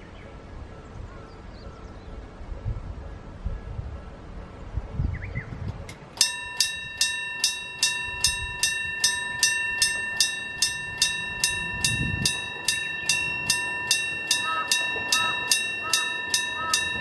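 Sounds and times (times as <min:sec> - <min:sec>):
level crossing bell ringing: 0:06.2 - 0:17.0.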